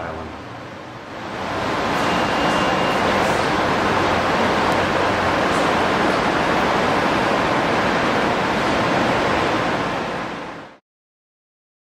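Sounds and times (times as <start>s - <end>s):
steady rushing noise: 0.2s - 10.8s.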